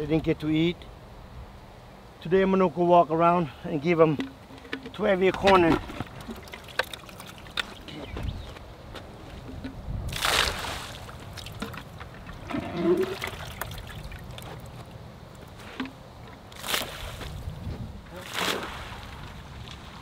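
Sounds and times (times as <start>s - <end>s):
water trickling off bucket: 4.2s - 8.0s, 9.5s - 14.9s
water splashing onto pond: 5.5s - 7.9s, 9.6s - 14.9s, 16.5s - 17.4s, 18.2s - 19.9s.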